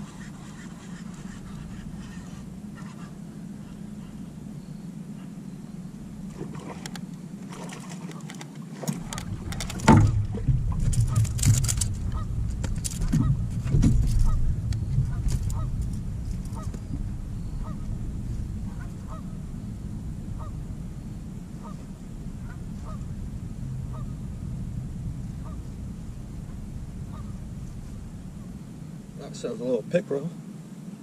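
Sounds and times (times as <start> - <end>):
goose honking: 0.0 - 7.0, 9.0 - 29.3
knocks and rattles of handling: 6.4 - 17.2.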